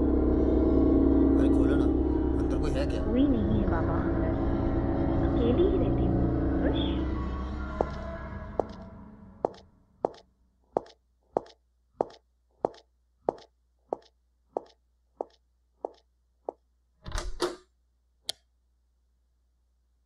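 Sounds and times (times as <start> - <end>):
footsteps on tiled floor: 8.6 - 8.8, 9.5 - 10.2, 10.8 - 16.6.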